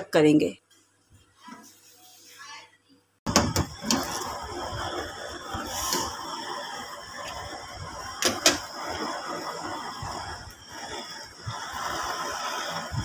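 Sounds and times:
water boiling in a pan: 0:03.3 - 0:13.0.

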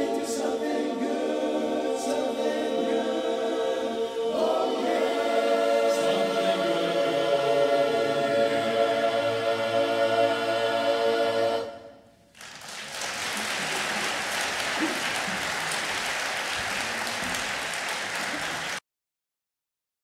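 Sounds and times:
men's a cappella chorus singing: 0:00.0 - 0:12.0
audience applauding: 0:12.3 - 0:18.8.

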